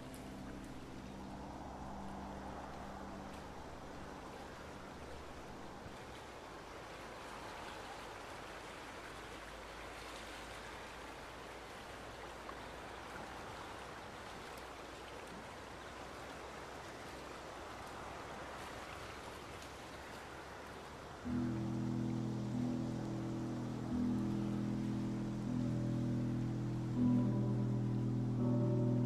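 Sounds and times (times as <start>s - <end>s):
stream running water: 0.0s - 29.0s.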